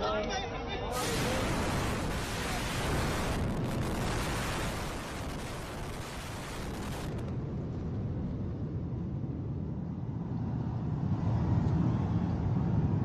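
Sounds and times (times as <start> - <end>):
low rumble of building collapsing: 1.0 - 11.1.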